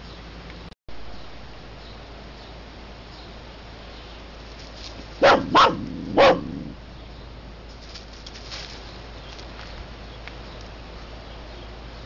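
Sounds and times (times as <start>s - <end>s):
dog barking: 5.2s - 6.8s.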